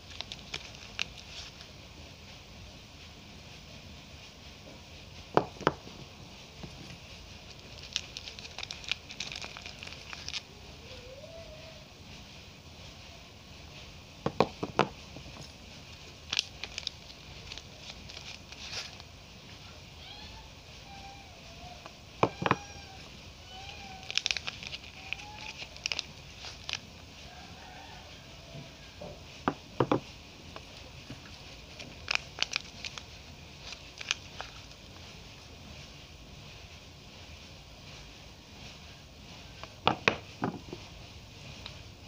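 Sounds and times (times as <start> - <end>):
wrapper crinkling: 0.0 - 1.8, 6.6 - 11.3, 14.4 - 20.2, 20.9 - 27.7, 30.6 - 36.0.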